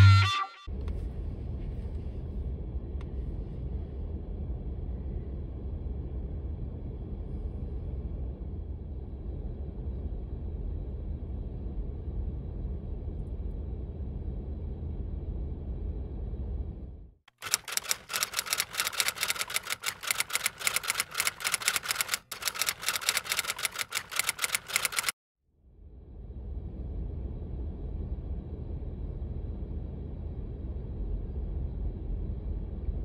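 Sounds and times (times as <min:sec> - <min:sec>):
typewriter clacking: 0:17.3 - 0:25.1.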